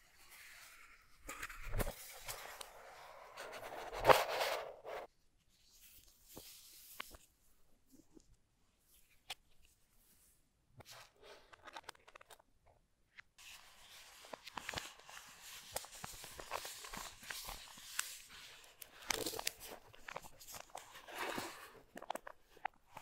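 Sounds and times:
paper rustles and taps: 13.4s - 23.0s
plastic sleeve crinkling: 13.4s - 23.0s.

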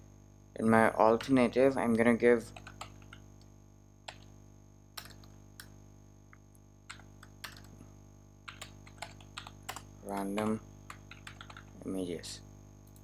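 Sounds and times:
faint steady hum: 0.0s - 13.0s
keyboard keystrokes: 5.0s - 5.7s, 6.9s - 7.7s, 8.5s - 11.7s.

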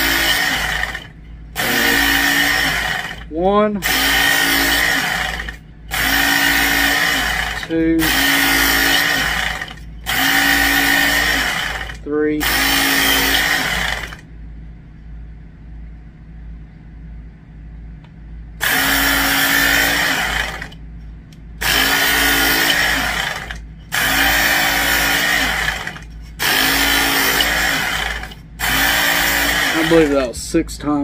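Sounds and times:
sharpener motor hum: 0.0s - 14.2s, 18.6s - 20.8s, 21.6s - 30.3s.

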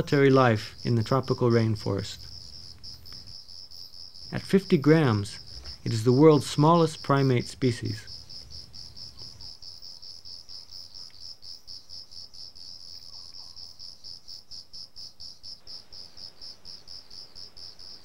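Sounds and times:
cricket-like insect chirping: 0.0s - 18.0s.

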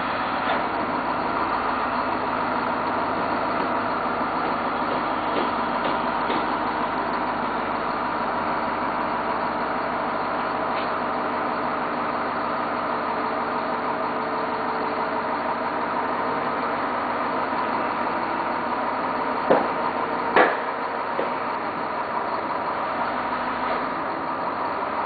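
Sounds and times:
truck engine idling: 0.0s - 25.0s
sharp knocks: 4.9s - 6.6s, 19.5s - 21.4s.

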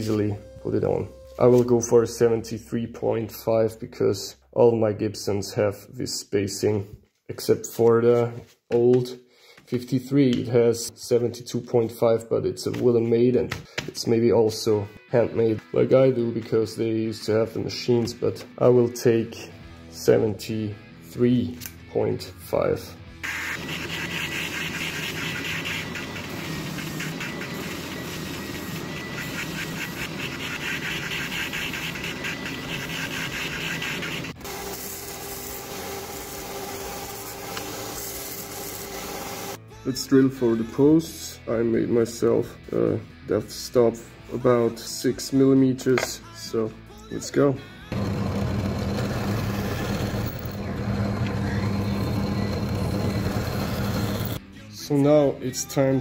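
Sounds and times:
belt sander running: 23.3s - 39.6s, 48.0s - 54.4s
drill bit drilling wood: 23.3s - 39.6s, 48.0s - 54.4s
drill press motor humming: 23.3s - 39.6s, 47.9s - 54.4s
spindle sander whirring: 23.3s - 39.6s, 47.9s - 54.4s.

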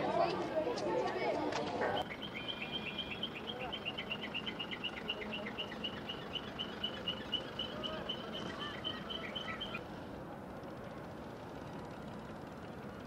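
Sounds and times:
steady outdoor hiss: 0.0s - 13.0s
bird high chirps: 2.0s - 9.8s.

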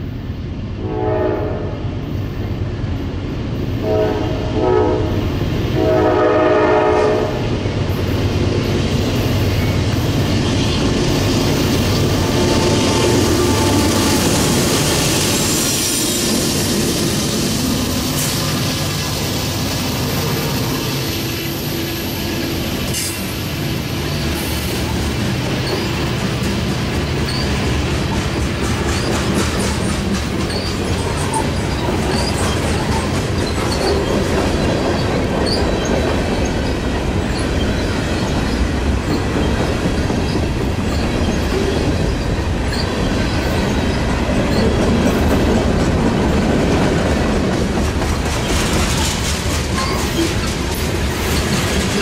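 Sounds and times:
freight train rumbling: 0.0s - 52.0s
wheels clicking over rail joints: 24.8s - 52.0s.

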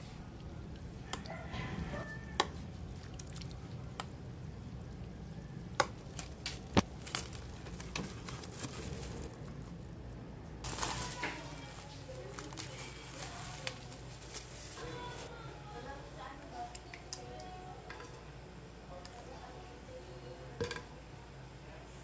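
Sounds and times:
wet squishing of stirring: 0.0s - 9.5s.

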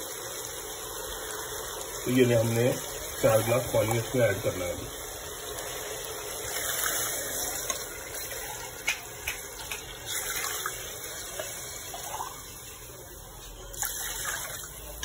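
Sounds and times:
water splashing into broth: 2.7s - 12.8s.

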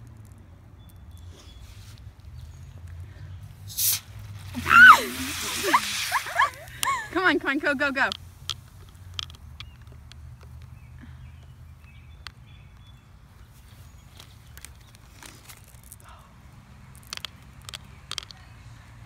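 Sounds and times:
candies ticking onto plastic bottle: 7.9s - 10.8s, 14.1s - 16.1s, 16.8s - 18.5s
candy wrapper crinkling: 14.2s - 16.1s.

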